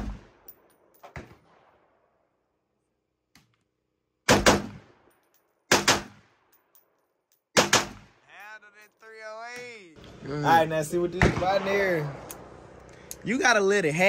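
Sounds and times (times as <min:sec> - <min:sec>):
rifle gunshots: 0:04.3 - 0:04.9, 0:05.7 - 0:06.3, 0:07.6 - 0:08.2, 0:11.1 - 0:12.7.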